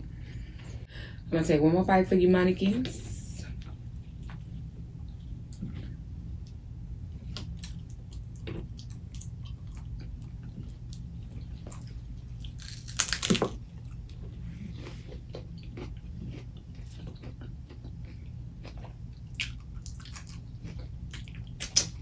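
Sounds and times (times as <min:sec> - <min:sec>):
chewing and mouth clicks: 0:07.3 - 0:22.0
crisp bite crunch: 0:07.3 - 0:22.0.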